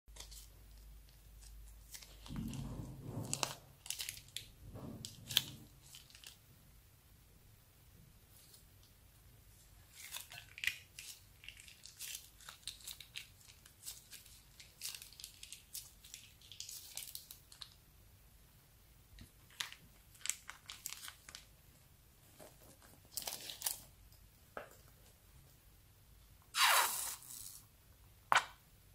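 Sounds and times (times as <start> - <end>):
plastic bag crinkling: 1.8 - 6.4, 9.9 - 17.8, 19.5 - 21.5.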